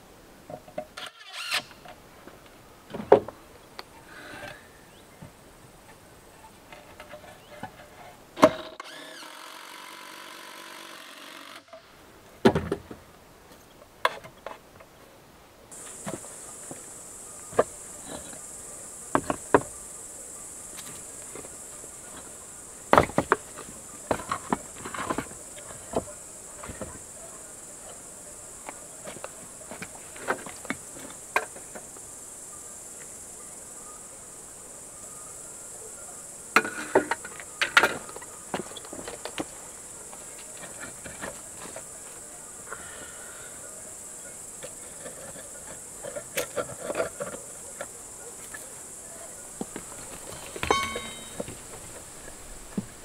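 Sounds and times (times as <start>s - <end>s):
insects chirring: 0.8s - 12.0s, 15.7s - 53.0s
tools and wood knocking on workbench: 36.6s - 38.7s, 49.6s - 51.6s.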